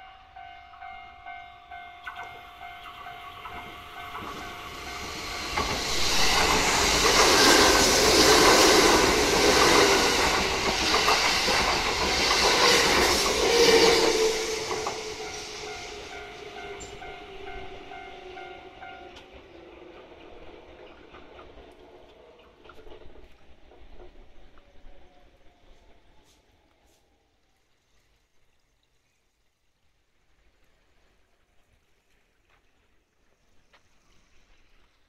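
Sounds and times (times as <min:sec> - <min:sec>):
crossing warning bell ringing: 0:00.0 - 0:07.1, 0:13.3 - 0:19.4
train passing: 0:00.0 - 0:27.2.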